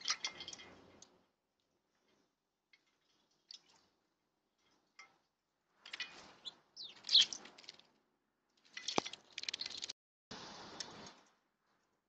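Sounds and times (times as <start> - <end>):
birds splashing in water bowl: 0.0 - 1.2, 5.8 - 7.9, 8.6 - 11.2
bird chirp: 6.3 - 7.7.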